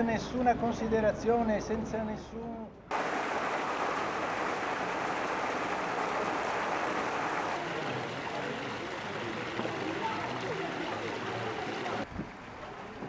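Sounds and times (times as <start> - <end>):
water jets pouring into floodwater: 2.9 - 13.0.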